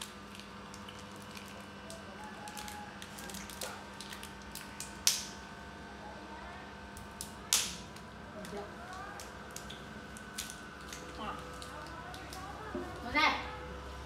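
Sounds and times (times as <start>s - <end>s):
plastic packet crinkling: 0.0s - 5.2s, 8.4s - 13.1s.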